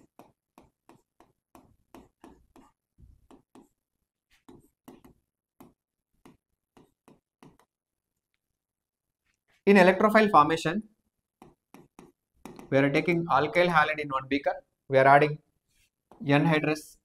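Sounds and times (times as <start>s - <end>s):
stylus tapping and scraping on screen: 0.0s - 9.8s, 11.0s - 13.8s, 15.5s - 16.7s.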